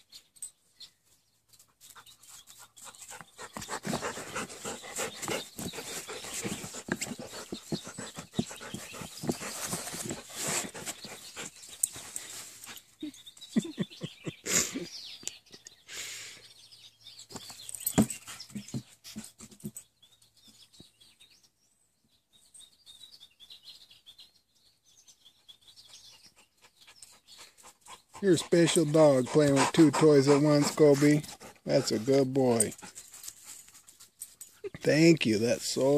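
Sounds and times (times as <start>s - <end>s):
faint bird chirps: 0.0s - 28.7s
puppy panting: 1.8s - 12.9s, 13.6s - 14.6s, 26.1s - 34.9s.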